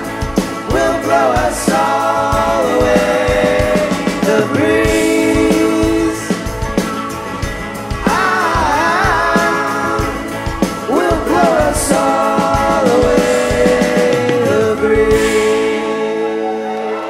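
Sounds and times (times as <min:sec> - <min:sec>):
person singing: 0:00.0 - 0:07.0, 0:07.9 - 0:17.0
live rock band playing: 0:00.0 - 0:17.0.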